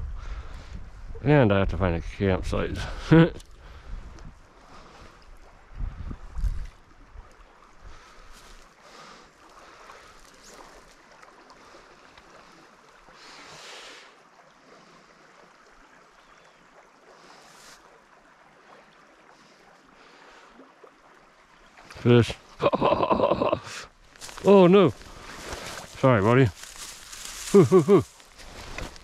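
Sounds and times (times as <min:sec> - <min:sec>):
brook current: 0:00.0 - 0:29.0.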